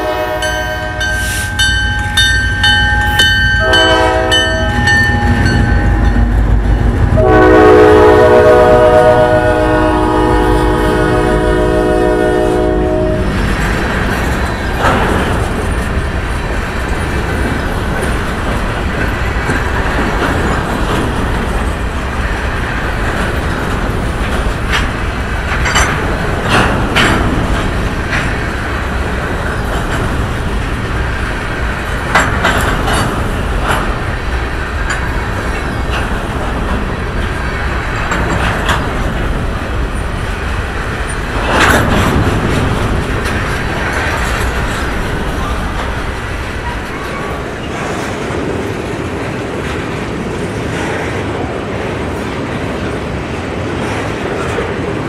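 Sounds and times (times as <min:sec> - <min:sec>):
locomotive air horn blast: 0:00.0 - 0:01.6, 0:03.6 - 0:04.8, 0:07.1 - 0:13.3
train wheels rumbling on rail: 0:00.0 - 0:55.0
wheels clacking over rail joints: 0:00.0 - 0:55.0.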